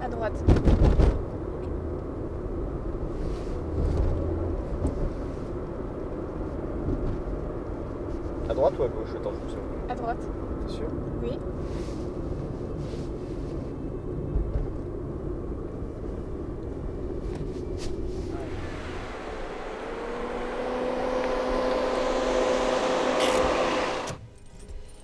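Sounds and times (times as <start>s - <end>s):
car engine and road rumble: 0.0s - 25.0s
car approaching with tyre hiss: 2.9s - 10.3s, 11.4s - 14.0s, 15.9s - 24.2s.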